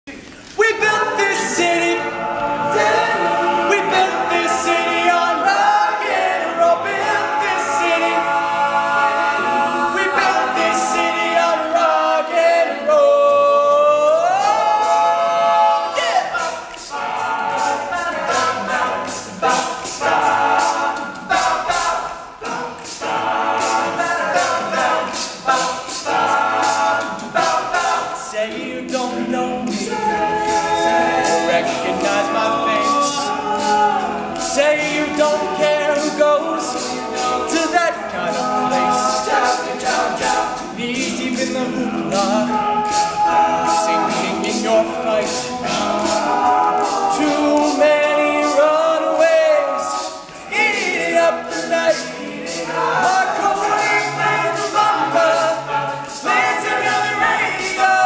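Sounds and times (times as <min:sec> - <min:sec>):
male a cappella group singing: 0:00.6 - 0:58.0
sharp percussive clicks: 0:16.3 - 0:58.0.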